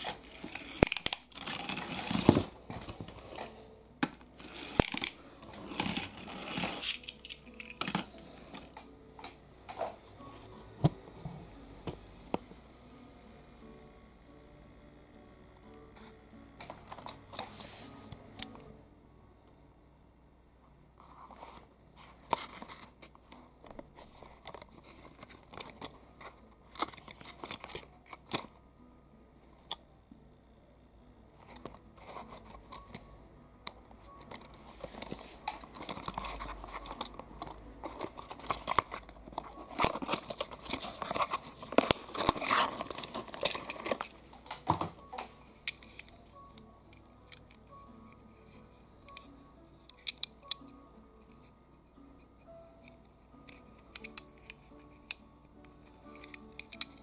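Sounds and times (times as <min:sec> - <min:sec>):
packaging crinkling and tearing: 0:00.0 - 0:02.5, 0:04.4 - 0:08.8, 0:37.8 - 0:44.6.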